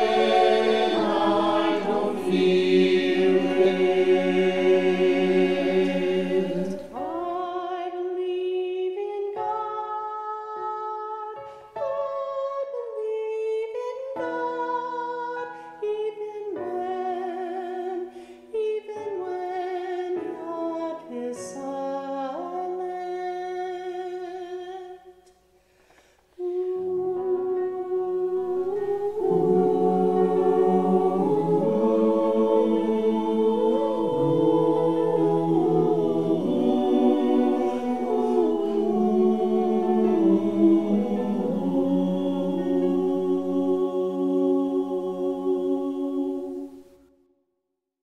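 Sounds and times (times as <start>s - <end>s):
choir singing: 0.0s - 25.2s, 26.4s - 47.1s
woman singing: 7.0s - 25.1s, 26.4s - 30.6s.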